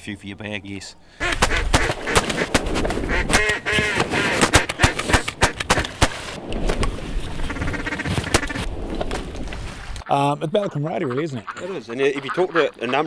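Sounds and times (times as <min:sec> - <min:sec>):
duck quacking: 0:01.2 - 0:05.9, 0:07.4 - 0:08.7, 0:10.6 - 0:13.0
sharp cracks and clicks: 0:01.3 - 0:06.9.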